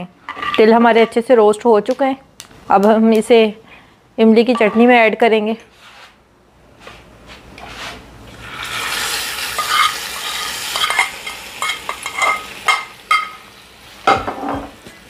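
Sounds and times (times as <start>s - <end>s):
metal spoon scraping a pan: 4.5s - 5.1s, 8.7s - 13.4s
hot oil sizzling: 8.3s - 15.0s.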